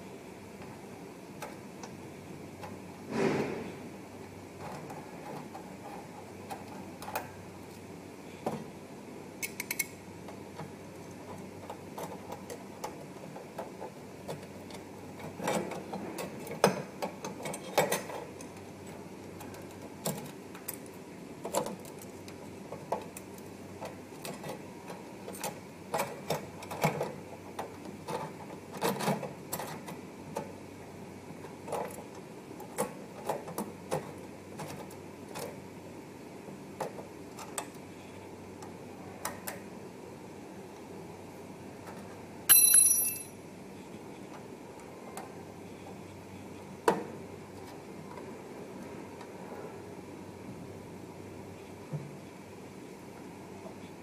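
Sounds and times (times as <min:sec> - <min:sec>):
steady background hum: 0:00.0 - 0:54.0
metallic clicks and taps: 0:09.4 - 0:10.0.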